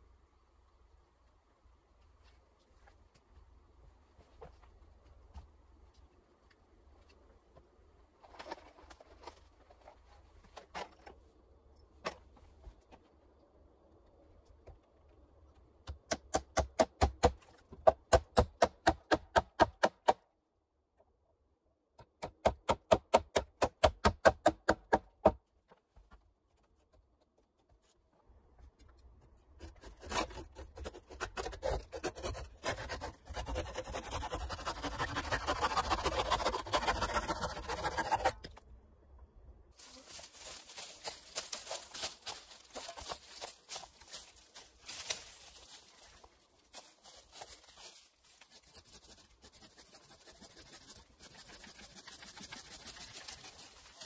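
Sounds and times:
hand saw cutting log: 29.6 - 38.5, 48.5 - 53.7.

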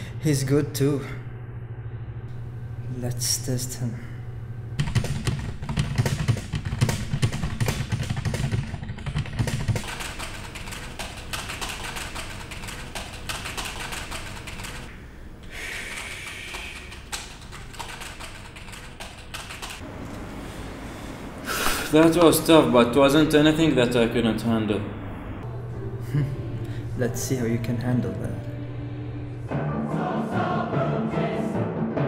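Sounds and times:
low hum: 0.0 - 6.5, 12.2 - 29.9
rapid keyboard typing: 4.8 - 14.9, 15.6 - 19.8.

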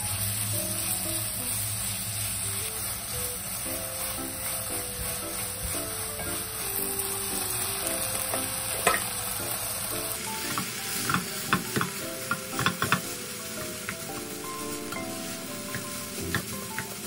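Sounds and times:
soft background music: 0.0 - 1.8, 3.3 - 17.0
food sizzling in a frying pan: 0.0 - 17.0
spatula knocking and scraping pan: 10.4 - 14.3, 15.7 - 17.0.

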